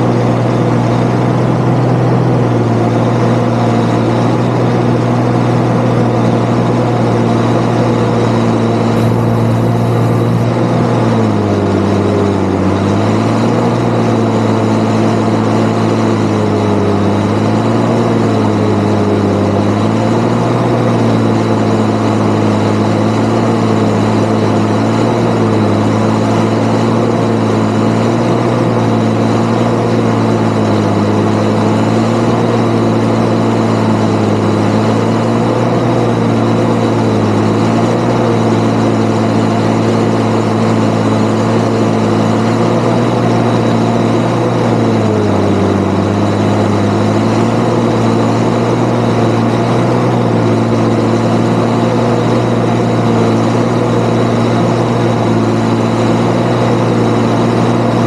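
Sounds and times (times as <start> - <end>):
tractor diesel engine running: 0.0 - 58.0
thin high whine: 8.9 - 10.6.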